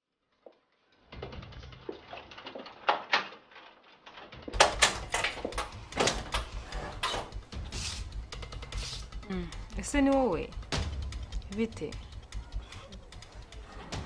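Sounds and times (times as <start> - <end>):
door knocks and clicks: 4.5 - 7.4.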